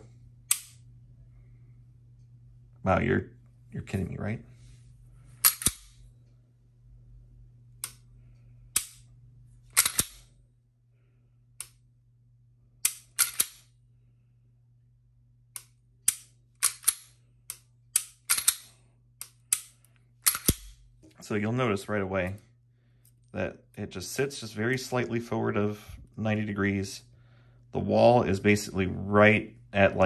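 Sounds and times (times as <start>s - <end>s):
pistol trigger clicks: 15.5s - 20.7s.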